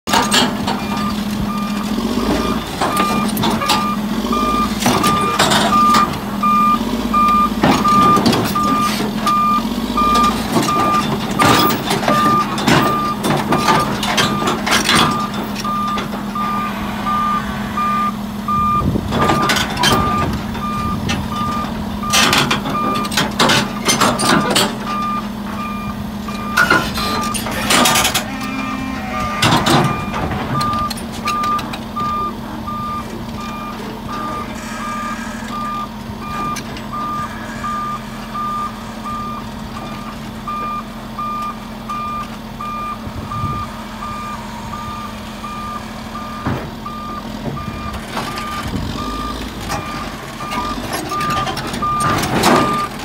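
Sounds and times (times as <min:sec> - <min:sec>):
diesel engine running: 0:00.0 - 0:53.0
metal clanks of steel tracks: 0:00.1 - 0:04.0, 0:04.7 - 0:06.2, 0:10.2 - 0:18.2, 0:18.9 - 0:34.8, 0:46.2 - 0:53.0
backup alarm beeping: 0:00.1 - 0:23.2, 0:24.9 - 0:28.1, 0:29.1 - 0:53.0.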